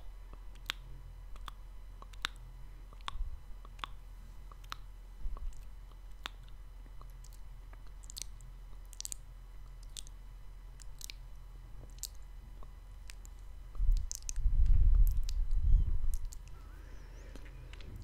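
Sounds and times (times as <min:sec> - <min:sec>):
wet tongue clicks: 0:00.3 - 0:09.2, 0:09.8 - 0:10.2, 0:10.8 - 0:11.2, 0:13.0 - 0:14.4, 0:15.0 - 0:16.6
lip smacks: 0:00.3 - 0:10.2, 0:10.8 - 0:11.2, 0:11.9 - 0:16.6
low muffled rumble: 0:13.3 - 0:18.0.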